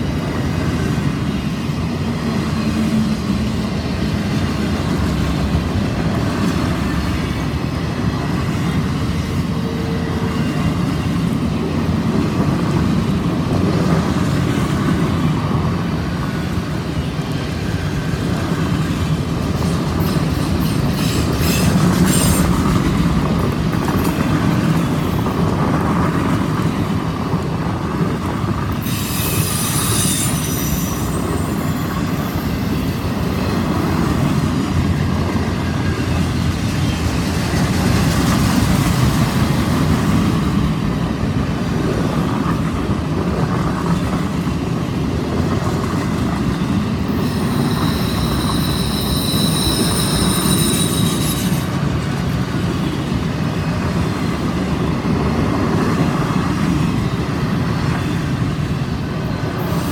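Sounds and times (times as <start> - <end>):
train wheels rumbling on rails: 0.0 - 59.9
wheels squealing: 28.8 - 33.3, 47.1 - 51.8.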